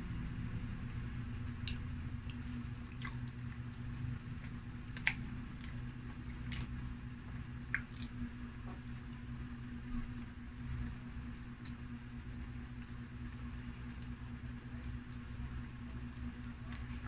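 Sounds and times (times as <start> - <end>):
steady low hum: 0.0 - 17.0
wet chewing mouth smacks: 1.5 - 9.3.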